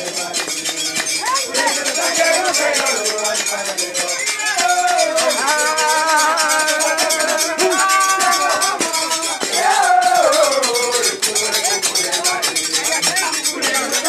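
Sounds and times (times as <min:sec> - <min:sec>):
rattling clinking percussion: 0:00.0 - 0:14.0
voices singing together: 0:00.0 - 0:14.0.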